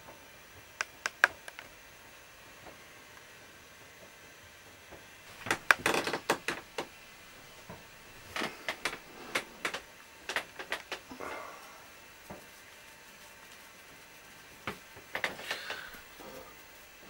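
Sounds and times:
sharp clicks and knocks: 0.8 - 1.7, 5.3 - 11.1, 14.6 - 16.0.

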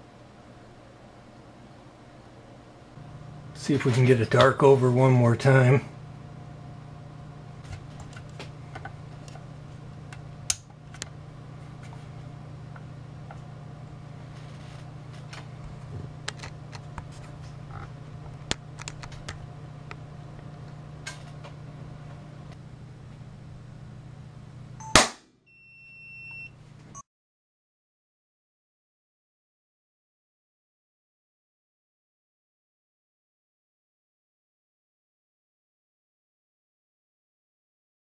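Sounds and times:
steady low hum: 0.0 - 27.0
short high beep: 24.8 - 26.5.

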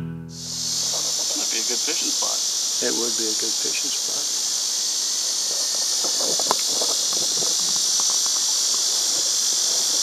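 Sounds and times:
insects buzzing: 0.4 - 10.0.

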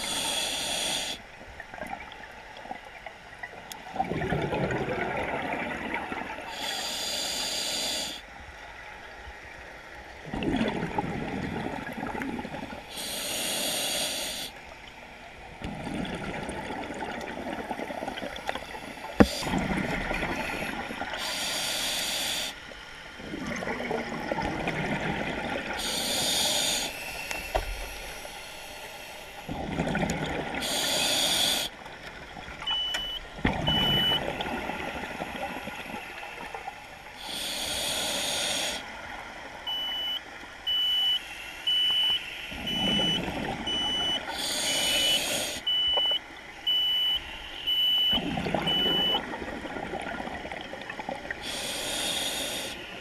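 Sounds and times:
regulator breathing inhale hiss: 0.0 - 1.2, 6.5 - 8.3, 12.9 - 14.6, 20.3 - 22.6, 25.8 - 29.5, 30.6 - 31.8, 37.1 - 38.9, 41.2 - 42.7, 44.3 - 45.7, 51.4 - 53.0
exhaled bubbles burbling: 3.9 - 6.4, 10.2 - 12.8, 15.5 - 18.6, 19.2 - 21.2, 23.2 - 26.0, 29.5 - 30.8, 33.4 - 36.5, 48.1 - 51.5.

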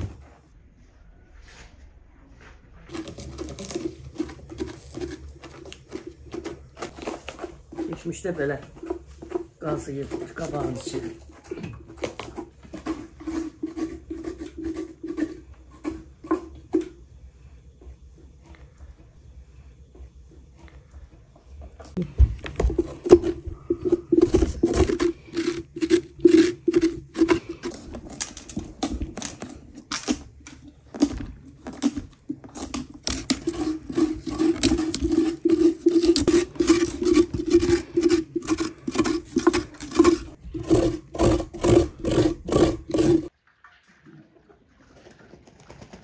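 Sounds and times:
spoon scraping pumpkin: 2.9 - 17.0, 21.9 - 43.3.

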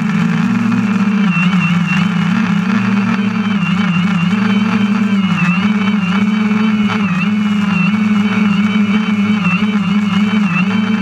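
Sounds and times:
drone motors humming and whining: 0.0 - 11.0.

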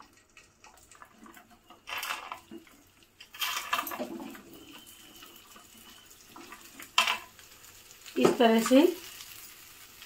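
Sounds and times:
okra clattering into a pan: 6.9 - 7.3.

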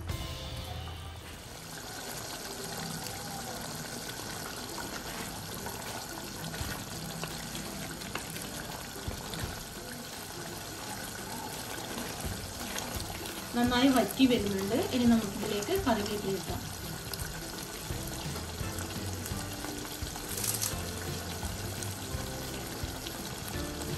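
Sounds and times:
food bubbling in a pan: 1.4 - 23.9
small crackles: 19.8 - 20.9.

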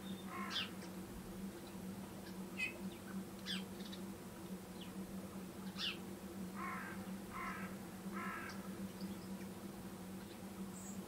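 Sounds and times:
small birds chirping: 0.0 - 1.0, 1.6 - 4.1, 5.6 - 6.0
steady low hum: 0.0 - 11.0
crow cawing: 0.3 - 0.7, 6.6 - 8.6.

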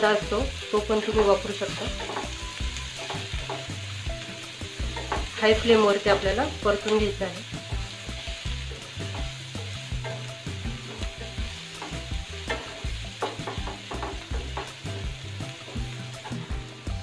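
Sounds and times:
vegetables sizzling in hot oil: 0.0 - 17.0
wooden spatula scraping a pan: 1.5 - 6.5.

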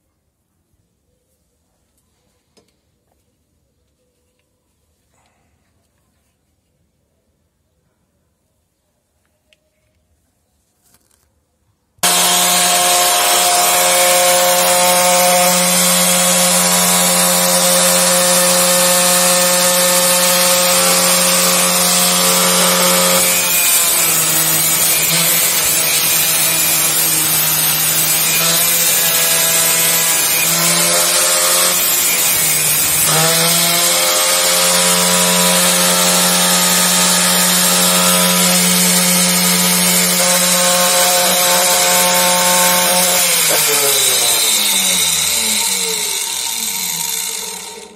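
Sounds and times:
angle grinder whining: 12.0 - 47.9
grinder disc cutting metal: 12.0 - 47.9.

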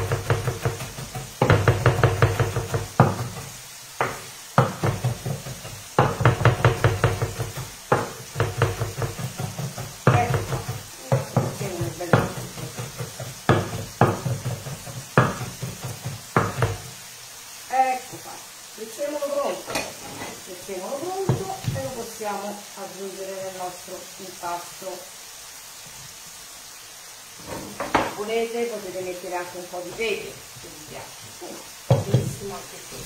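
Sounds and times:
knife chopping on wooden board: 0.0 - 16.9.

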